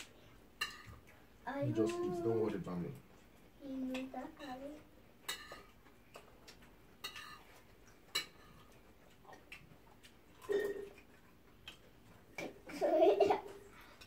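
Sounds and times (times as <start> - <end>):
cutlery clinking on plates: 0.6 - 1.0, 5.2 - 6.3, 7.0 - 8.8.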